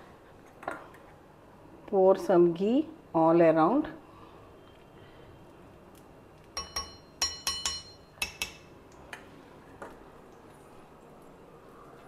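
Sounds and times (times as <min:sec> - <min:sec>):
spoon clinking against bowl: 0:06.6 - 0:08.8.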